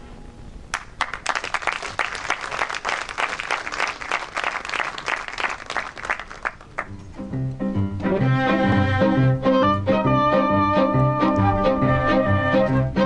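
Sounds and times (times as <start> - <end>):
audience applauding: 0.7 - 6.9
string orchestra playing: 8.0 - 13.0.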